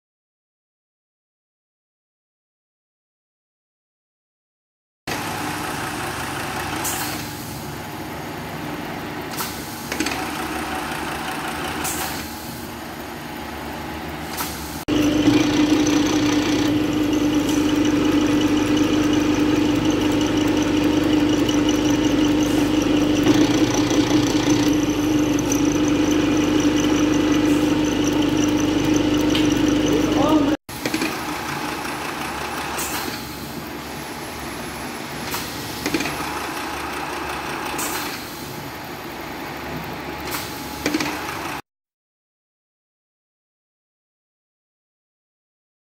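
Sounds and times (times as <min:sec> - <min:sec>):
riveting machine motor humming: 0:05.1 - 0:06.9, 0:10.0 - 0:11.8, 0:14.9 - 0:32.8, 0:36.0 - 0:37.8
workshop background noise: 0:05.1 - 0:41.6.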